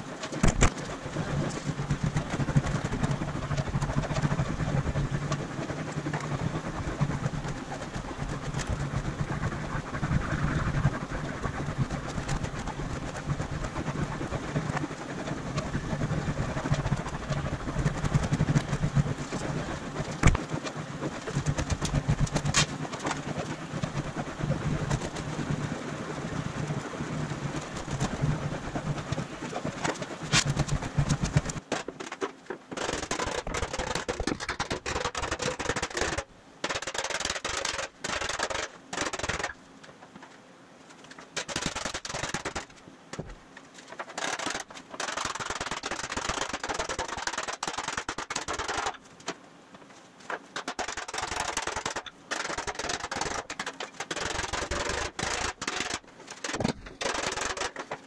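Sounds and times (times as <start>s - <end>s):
choppy rubbing sounds: 0.0s - 31.7s, 32.8s - 39.6s, 41.4s - 42.7s, 44.1s - 49.0s, 50.6s - 56.0s
sharp clicks and knocks: 0.2s - 7.6s, 15.5s - 24.1s, 29.1s - 40.4s, 41.0s - 49.4s, 50.3s - 58.0s.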